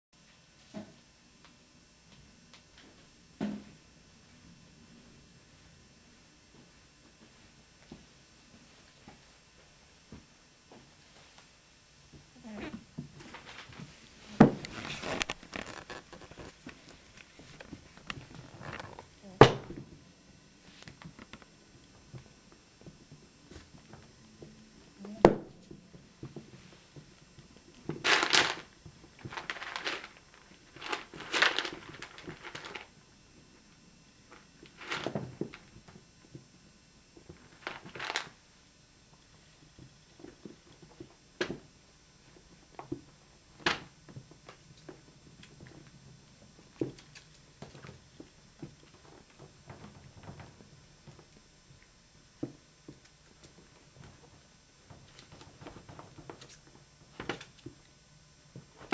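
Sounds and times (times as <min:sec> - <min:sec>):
rabbits scrabbling and rustling: 0:28.0 - 0:33.0.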